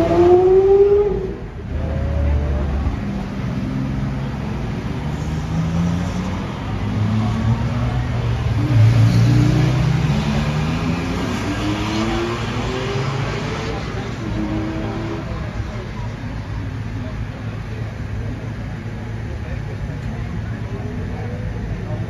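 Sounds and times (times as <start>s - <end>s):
sports cars accelerating past: 0.0s - 15.4s.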